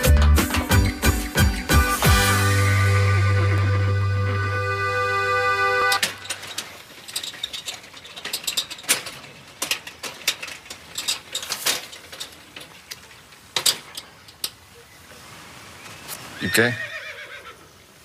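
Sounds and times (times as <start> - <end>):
music: 0.0 - 6.0
wheelbarrow rattling and clanking: 5.8 - 14.8.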